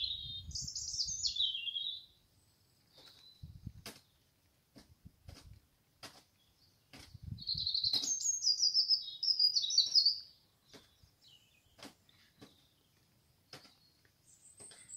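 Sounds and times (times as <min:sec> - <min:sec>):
nightingale singing: 0:00.0 - 0:04.2, 0:06.4 - 0:14.9
sharp bird clicking notes: 0:07.8 - 0:08.2.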